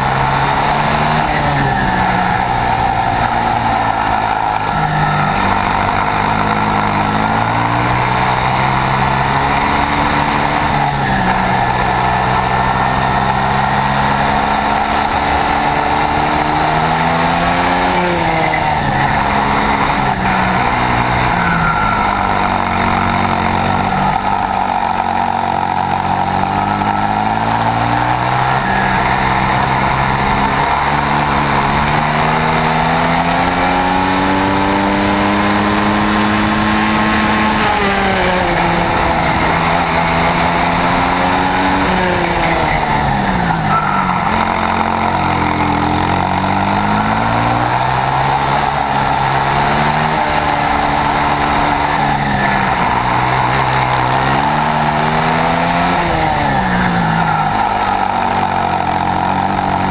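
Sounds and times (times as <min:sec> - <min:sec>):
kart engine revving: 0:00.0 - 0:59.9.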